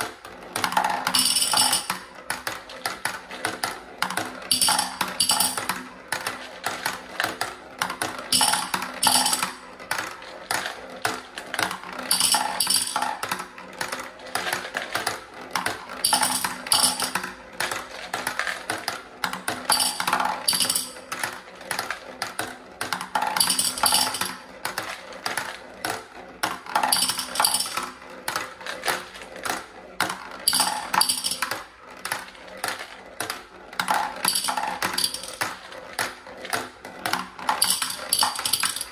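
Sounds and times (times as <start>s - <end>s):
marbles rolling on plastic tracks: 0.0s - 38.9s
marbles clinking in glass jar: 1.0s - 2.0s, 4.5s - 5.7s, 8.3s - 9.6s, 12.1s - 13.2s, 16.0s - 17.2s, 19.7s - 21.1s, 23.2s - 24.4s, 26.8s - 27.9s, 30.5s - 31.5s, 34.2s - 35.4s, 37.5s - 38.9s.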